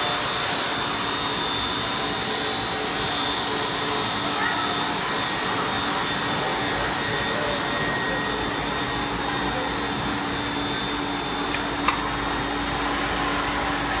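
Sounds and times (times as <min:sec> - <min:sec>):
machine whir and hum: 0:00.0 - 0:14.0.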